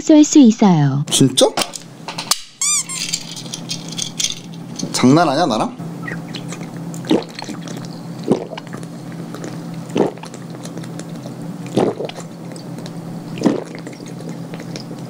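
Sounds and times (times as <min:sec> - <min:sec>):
steady low hum: 0:00.0 - 0:15.0
person gulping soda: 0:06.4 - 0:15.0.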